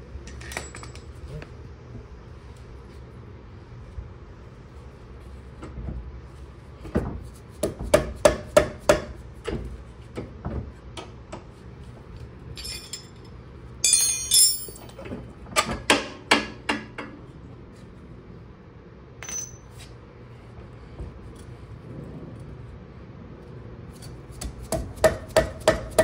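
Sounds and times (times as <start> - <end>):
ringing metallic clatter: 13.8 - 15.0, 19.2 - 19.7.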